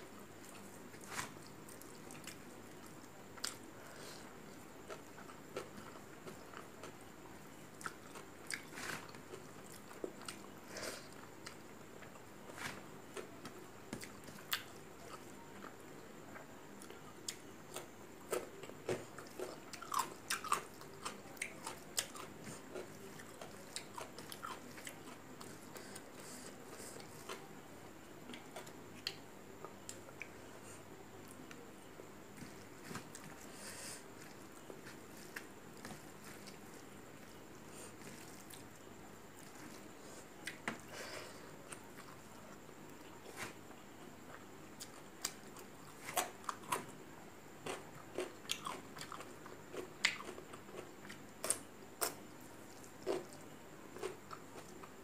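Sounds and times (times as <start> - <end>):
person chewing with wet smacks: 7.8 - 10.5, 44.3 - 46.9, 47.6 - 55.0.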